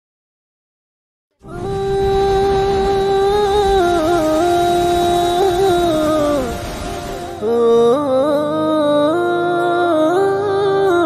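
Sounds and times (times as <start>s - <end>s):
low rumble: 1.4s - 7.8s.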